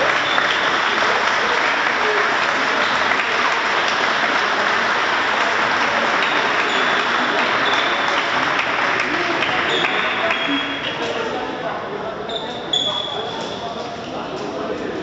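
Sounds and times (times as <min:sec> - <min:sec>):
applause: 0:00.0 - 0:11.1.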